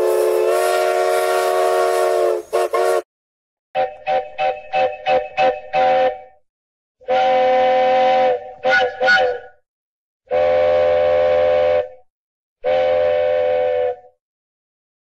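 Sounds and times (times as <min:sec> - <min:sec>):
steam locomotive chime whistle: 0:00.0 - 0:03.0, 0:03.8 - 0:06.4, 0:07.0 - 0:09.6, 0:12.6 - 0:14.1.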